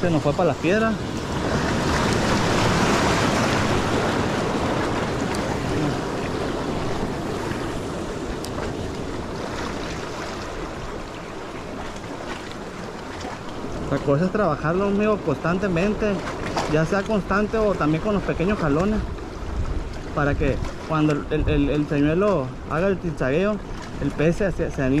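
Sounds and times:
sea water washing over rocks: 0:00.0 - 0:25.0.

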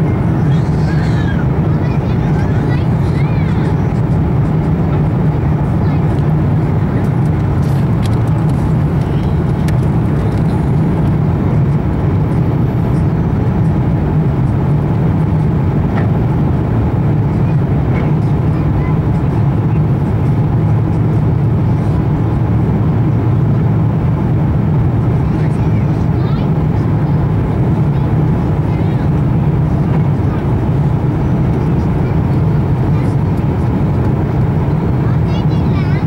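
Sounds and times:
jet engine drone in cabin: 0:00.0 - 0:36.0
rushing airflow: 0:00.0 - 0:36.0.

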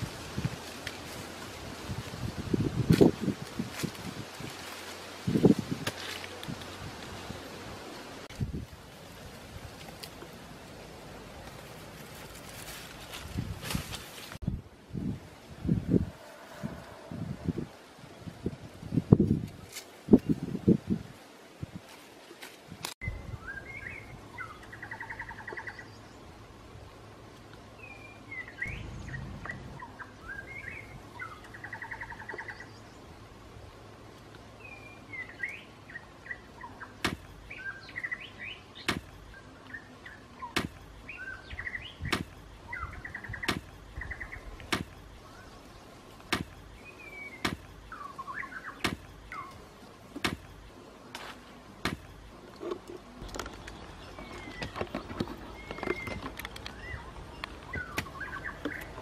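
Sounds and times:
bamboo pole jabbing ground: 0:05.7 - 0:06.6, 0:37.0 - 0:37.3, 0:38.9 - 0:39.1, 0:40.6 - 0:40.8, 0:42.0 - 0:42.4, 0:44.7 - 0:45.0, 0:46.2 - 0:46.6, 0:47.4 - 0:47.7, 0:48.8 - 0:49.1, 0:50.2 - 0:50.5
birds singing: 0:23.0 - 0:26.4, 0:27.7 - 0:33.3, 0:34.5 - 0:50.8, 0:51.9 - 0:59.0.

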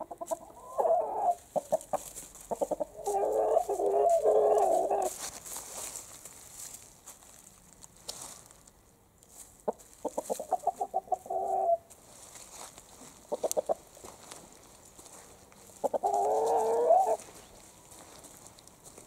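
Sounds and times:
rooster clucking: 0:00.0 - 0:05.2, 0:09.7 - 0:11.9, 0:13.3 - 0:13.9, 0:15.8 - 0:17.3.

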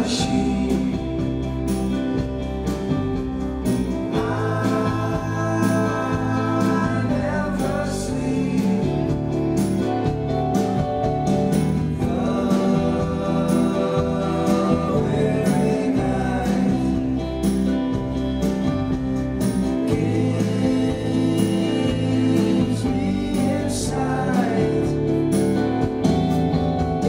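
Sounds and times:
man singing: 0:00.0 - 0:02.3, 0:04.0 - 0:09.6, 0:11.9 - 0:17.8, 0:19.7 - 0:25.9
electric bass guitar: 0:00.0 - 0:27.0
steady drum beat: 0:00.0 - 0:27.0.

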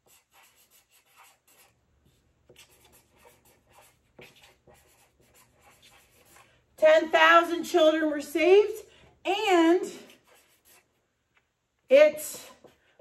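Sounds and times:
marker scratching on paper: 0:00.0 - 0:06.6, 0:09.6 - 0:11.0.

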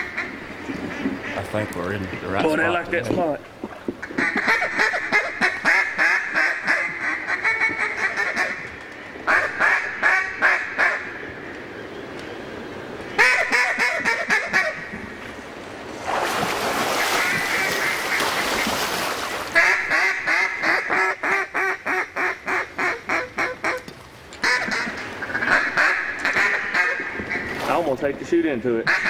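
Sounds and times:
mallard quacking: 0:24.4 - 0:27.4.

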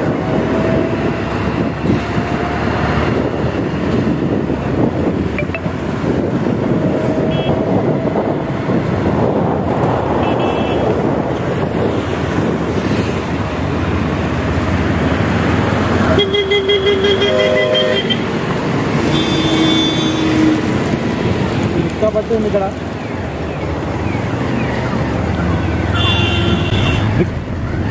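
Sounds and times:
busy road traffic: 0:00.0 - 0:27.9
vehicle horns honking: 0:07.2 - 0:07.6, 0:10.2 - 0:11.0, 0:16.1 - 0:18.3, 0:19.0 - 0:20.6, 0:25.8 - 0:27.2.

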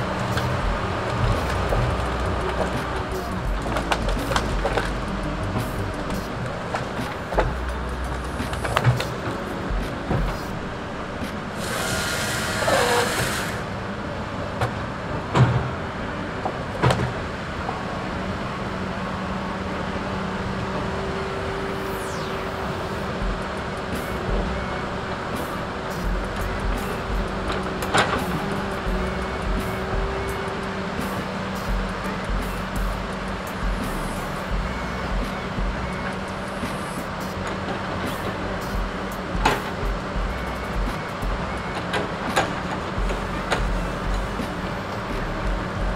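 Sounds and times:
diesel engine running: 0:00.0 - 0:45.9
hiss with falling squeal: 0:11.3 - 0:13.8, 0:20.4 - 0:39.8.

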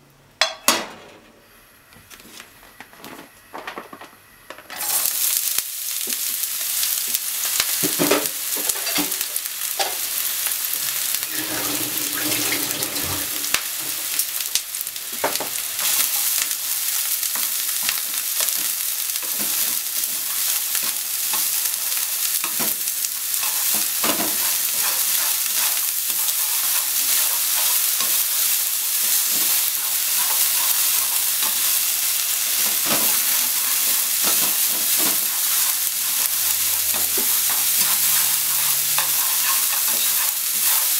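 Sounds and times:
onion sizzling in hot oil: 0:04.7 - 0:40.9
chopsticks clicking and scraping pan: 0:17.3 - 0:40.9.

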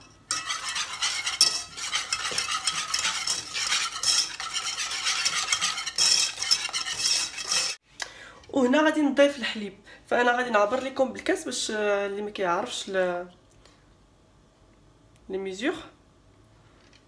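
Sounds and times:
whisk beating in a saucepan: 0:00.0 - 0:07.8.

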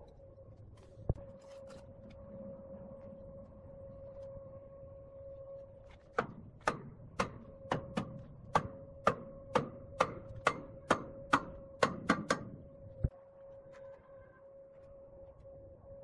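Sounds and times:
faint steady hum: 0:00.0 - 0:16.0
hammer knocking on steel: 0:06.2 - 0:12.5.

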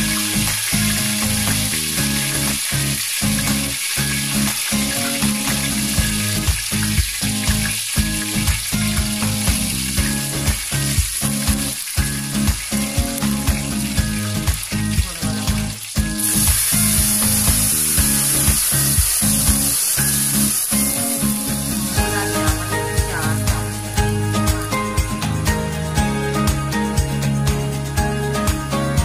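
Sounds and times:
liquid poured into hot oil hissing: 0:00.0 - 0:24.6
background music with beat: 0:00.0 - 0:29.0
hot oil sizzling: 0:00.0 - 0:29.0.

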